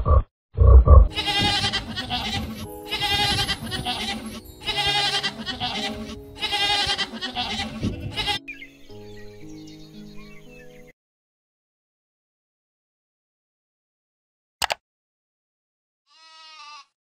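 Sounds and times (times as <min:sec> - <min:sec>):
goats bleating: 0:01.1 - 0:08.4, 0:16.1 - 0:17.0
soft background music: 0:01.1 - 0:10.9.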